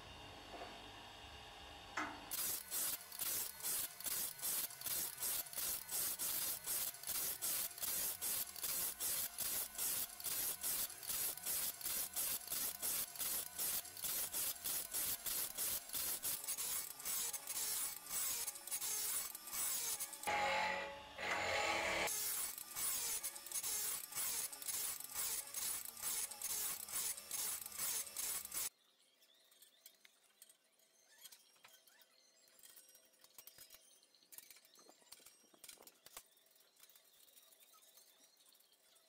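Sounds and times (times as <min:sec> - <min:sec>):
grinding wheel rasping on steel: 0:02.3 - 0:28.7.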